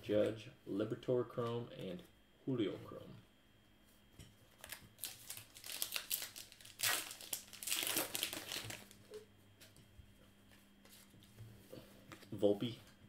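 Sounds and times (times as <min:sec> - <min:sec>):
wrapper tearing and crinkling: 0:04.6 - 0:09.0.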